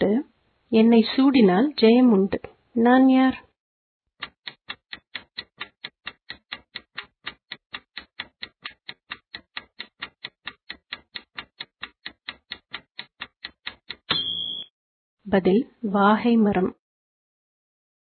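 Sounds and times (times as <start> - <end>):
clock ticks: 4.2 - 14.4.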